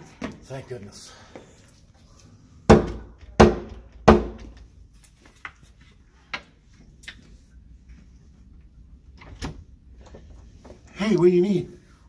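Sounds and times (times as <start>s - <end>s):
loud knocks on a door: 2.7s - 4.6s.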